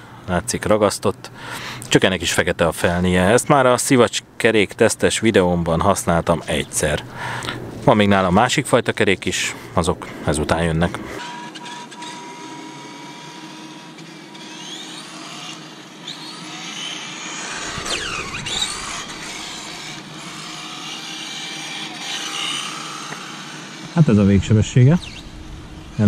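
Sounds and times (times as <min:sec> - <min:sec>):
electric motor whining: 0:10.8 - 0:26.0.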